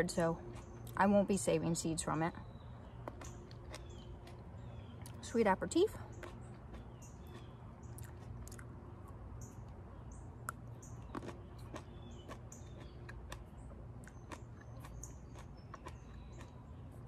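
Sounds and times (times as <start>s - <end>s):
small birds chirping: 0.0s - 17.0s
person chewing with wet clicks: 0.1s - 1.0s, 2.9s - 5.2s, 6.1s - 9.8s, 10.4s - 17.0s.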